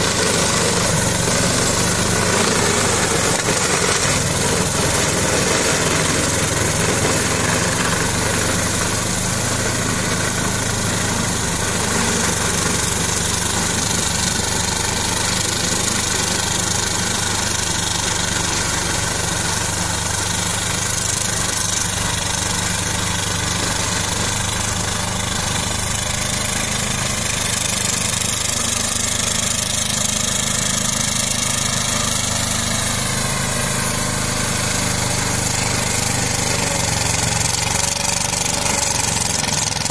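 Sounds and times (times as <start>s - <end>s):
diesel tractor engine running: 0.0s - 39.9s
flail mulcher cutting grass: 0.0s - 39.9s.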